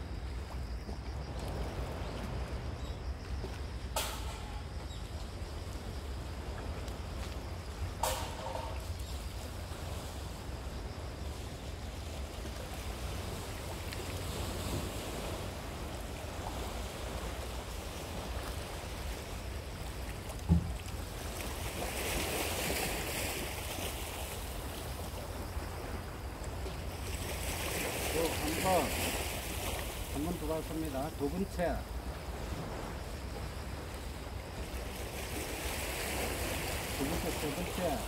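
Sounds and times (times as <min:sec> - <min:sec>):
wind rumble on microphone: 0:00.0 - 0:28.8
sea waves on rocky shore: 0:00.0 - 0:38.0
sharp thump: 0:04.0 - 0:04.7, 0:08.0 - 0:08.8, 0:20.5 - 0:20.7.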